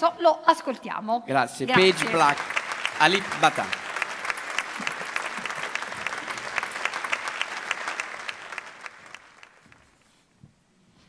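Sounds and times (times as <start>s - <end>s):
audience applauding: 1.8s - 10.0s.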